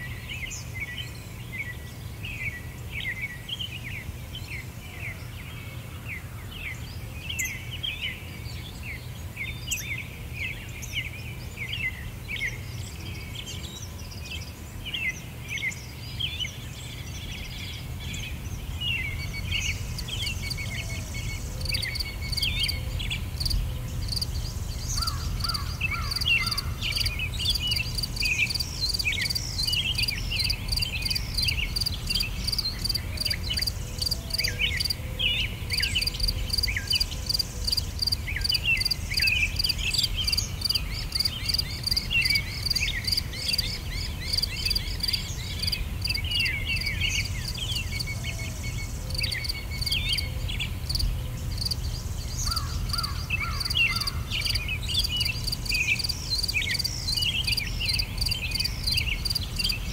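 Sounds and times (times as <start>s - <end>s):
pulsing insect chorus: 19.0s - 35.0s, 35.7s - 59.9s.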